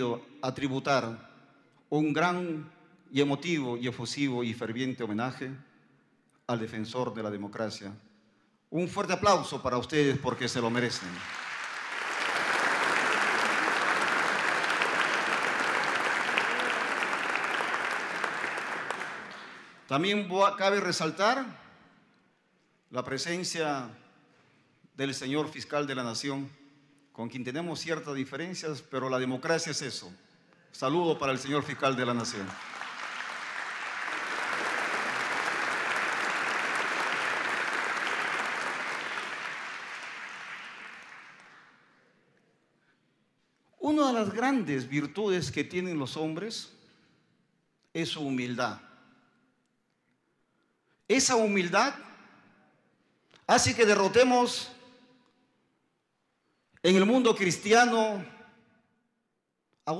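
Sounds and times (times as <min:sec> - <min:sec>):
audience applauding: 0:10.5 - 0:19.9, 0:31.3 - 0:41.8.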